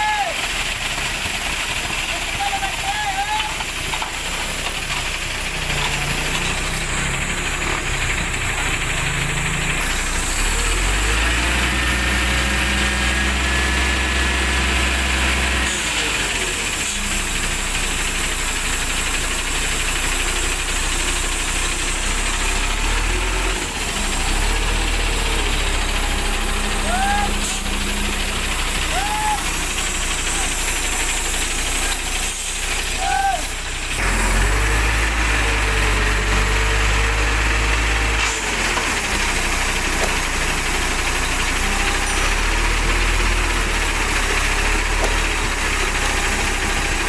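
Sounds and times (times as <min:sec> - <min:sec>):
concrete pouring down chute: 0:00.0 - 0:47.0
diesel engine running: 0:00.0 - 0:47.0.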